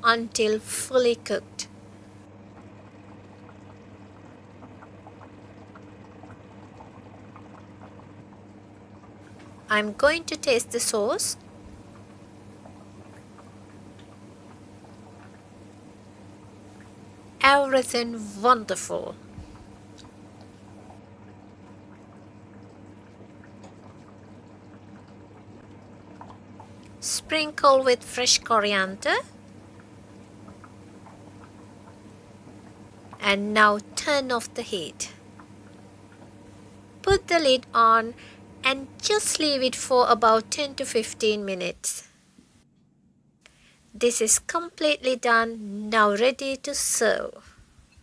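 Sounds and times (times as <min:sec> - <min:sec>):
low steady hum: 0:00.0 - 0:48.0
curry bubbling in a saucepan: 0:00.6 - 0:41.3.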